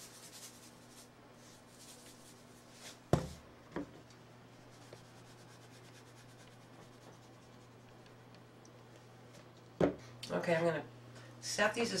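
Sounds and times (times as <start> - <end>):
seasoning shaken from jar: 0.0 - 1.1.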